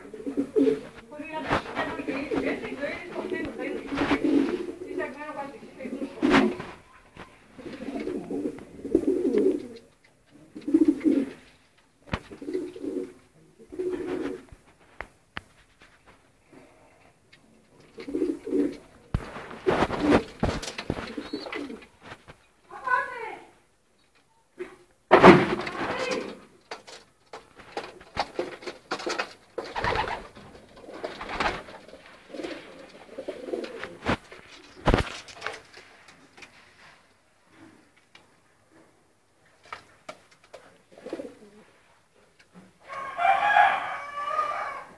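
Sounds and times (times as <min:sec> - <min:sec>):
pigeons cooing: 0:00.0 - 0:01.0, 0:01.7 - 0:11.5, 0:12.2 - 0:14.5, 0:17.6 - 0:22.0, 0:27.8 - 0:35.0, 0:40.8 - 0:41.8
wings rustling: 0:00.2 - 0:09.9, 0:18.0 - 0:23.1, 0:27.5 - 0:36.9.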